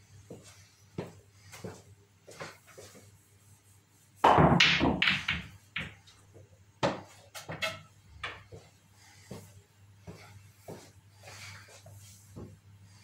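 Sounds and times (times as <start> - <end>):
pool balls clacking: 4.2 - 6.2.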